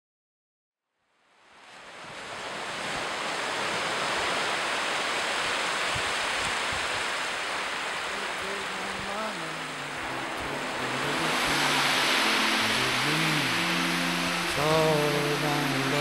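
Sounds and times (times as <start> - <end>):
sea waves washing onto beach: 1.5 - 16.0.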